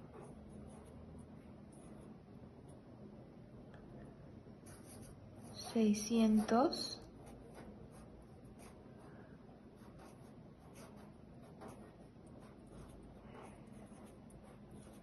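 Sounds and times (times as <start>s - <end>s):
pen scratching on paper: 0.0s - 1.0s, 4.6s - 9.1s, 9.7s - 15.0s.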